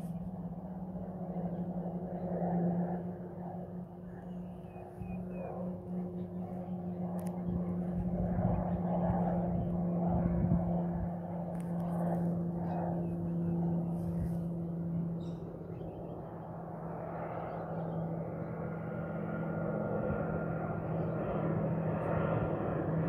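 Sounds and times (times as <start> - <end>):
constant hum: 0.0 - 23.0
distant aircraft engine droning: 0.0 - 23.0
faint bird chirps: 15.2 - 16.3.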